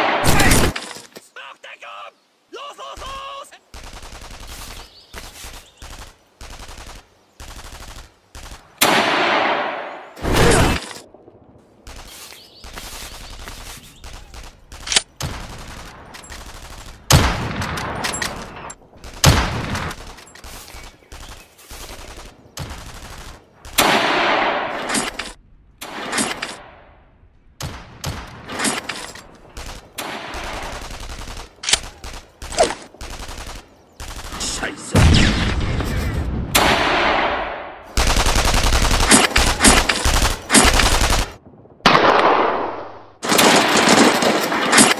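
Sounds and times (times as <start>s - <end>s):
single rifle shots: 0.0s - 0.8s, 5.8s - 11.1s, 21.9s - 26.9s, 27.6s - 44.9s
machine-gun fire bursts: 3.7s - 4.7s, 5.8s - 9.4s, 29.5s - 34.5s, 37.9s - 42.4s.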